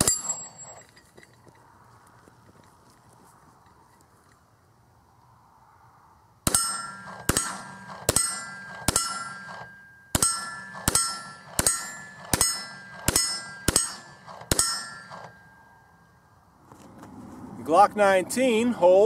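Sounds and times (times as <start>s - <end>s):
steel target ringing: 0.0s - 0.8s, 6.5s - 16.0s
pistol shots: 6.5s - 15.4s.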